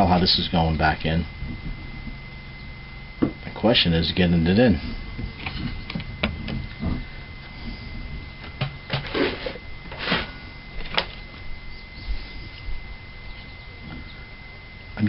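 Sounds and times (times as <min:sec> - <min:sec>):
faint steady high tone: 0:09.6 - 0:15.0.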